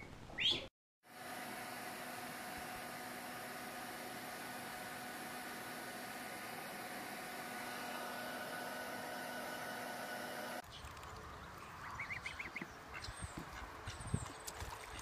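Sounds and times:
duckling peeps: 11.8s - 14.0s.

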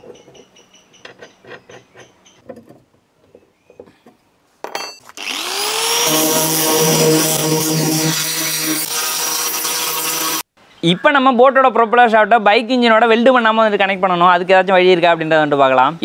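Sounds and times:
angle grinder sanding: 5.2s - 10.4s.

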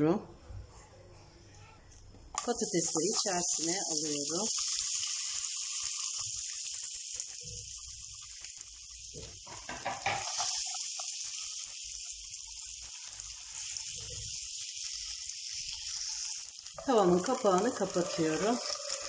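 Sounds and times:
potatoes sizzling in oil: 2.4s - 19.0s.

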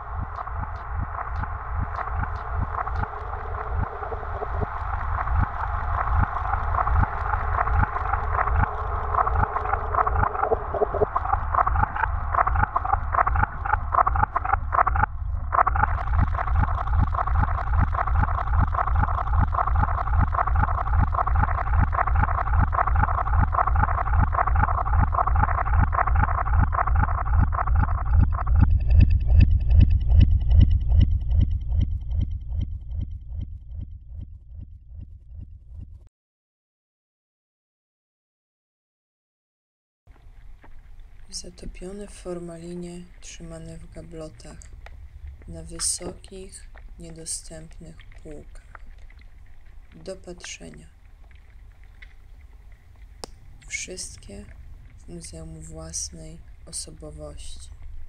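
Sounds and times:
fast electronic pulsing: 0.0s - 35.4s
deep low rumble: 0.0s - 36.1s, 40.2s - 58.0s.

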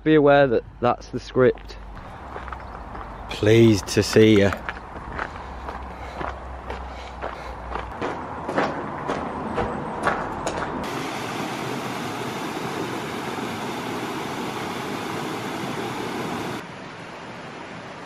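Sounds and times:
footsteps on gravel: 1.5s - 10.8s
even water hiss: 10.9s - 18.0s.

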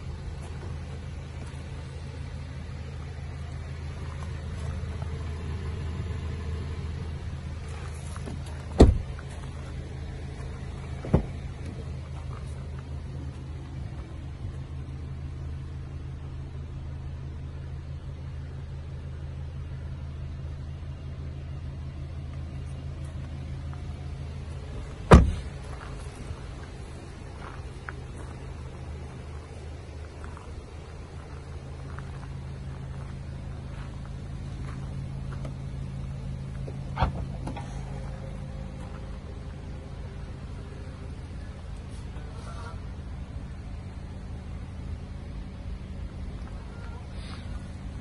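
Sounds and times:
car engine idling: 0.0s - 48.0s
car doors thumping shut: 8.2s - 9.4s, 11.0s - 11.7s, 25.0s - 25.7s, 36.9s - 37.9s.

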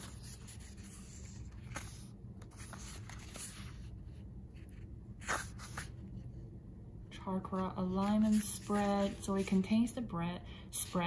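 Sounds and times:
paper pages rustling: 0.0s - 4.0s, 4.6s - 6.0s, 8.0s - 9.8s
low room hum: 0.0s - 11.0s.

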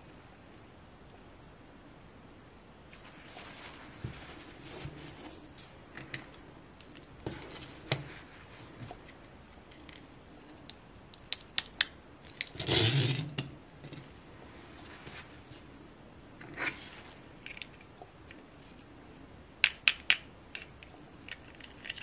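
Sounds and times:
rustle of handling: 2.9s - 10.6s, 14.0s - 15.8s
plastic dolls clicking and tapping: 19.6s - 22.0s.

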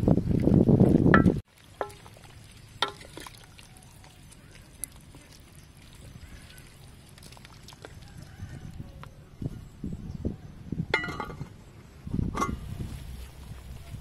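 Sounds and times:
wind rumbling on microphone: 0.0s - 1.4s, 5.6s - 14.0s
soup simmering in a pot: 1.4s - 9.1s
wooden spoon stirring soup: 1.6s - 8.3s.

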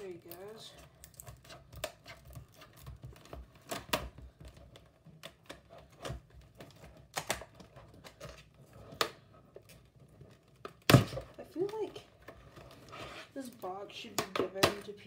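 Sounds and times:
scissors cutting plastic: 0.0s - 12.0s
plastic packaging clicking and snapping: 0.0s - 12.8s.

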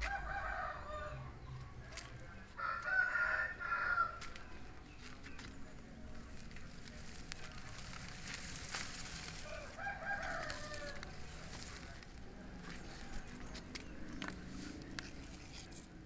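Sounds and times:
rooster crowing: 0.0s - 1.3s, 2.6s - 4.2s, 9.4s - 11.2s.

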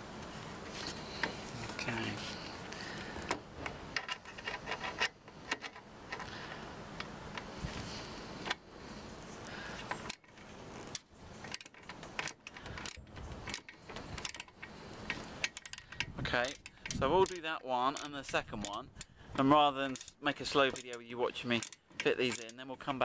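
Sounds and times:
metallic clicks and rattles of tool: 3.9s - 6.4s, 9.8s - 19.1s, 19.8s - 22.9s
rubbing and scraping: 4.0s - 6.3s.

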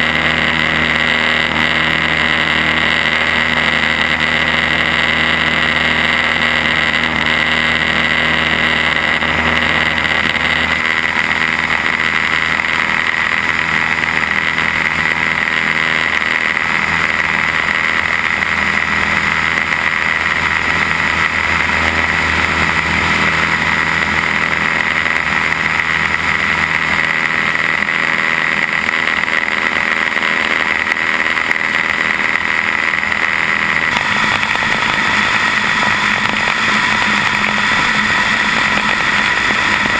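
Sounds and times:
propeller plane engine running: 0.0s - 39.9s.

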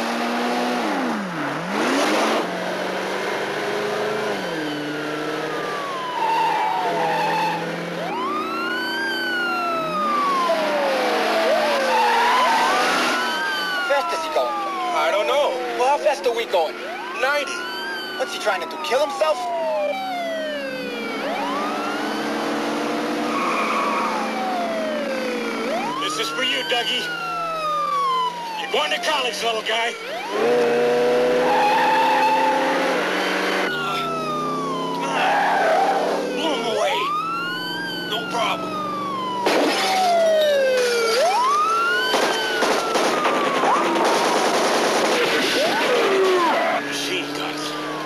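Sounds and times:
car engine running hard: 0.0s - 13.9s, 30.1s - 39.8s, 41.8s - 48.0s
police siren wailing: 0.0s - 48.0s.

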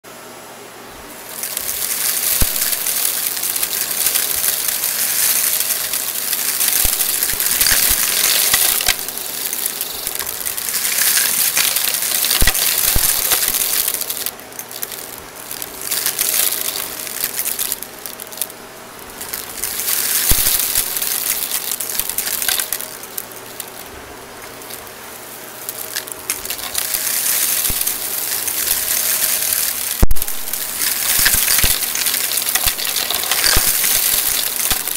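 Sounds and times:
debris rattling through vacuum: 1.1s - 34.9s.

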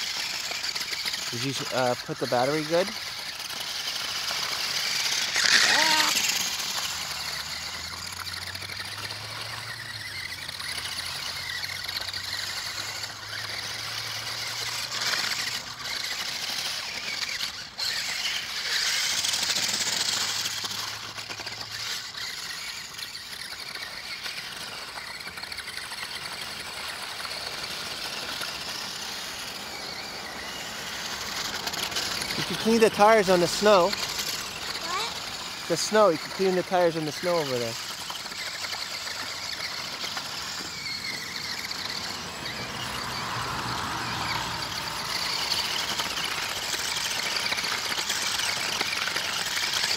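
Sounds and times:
toy truck electric motors whining: 0.0s - 49.9s.

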